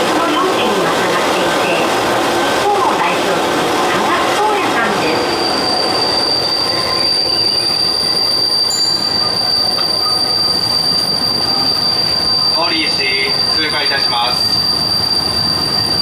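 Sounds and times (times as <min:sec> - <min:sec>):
train running on track: 0:00.0 - 0:16.0
train wheels squealing: 0:04.8 - 0:16.0.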